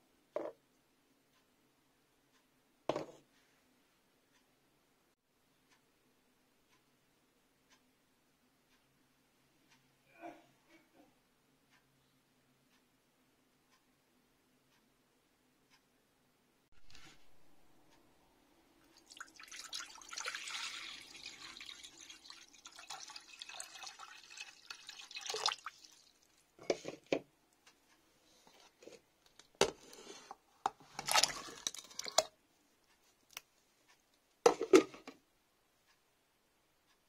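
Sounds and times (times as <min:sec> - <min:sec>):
tap water pouring into a pan: 0:19.0 - 0:26.4, 0:31.0 - 0:32.3.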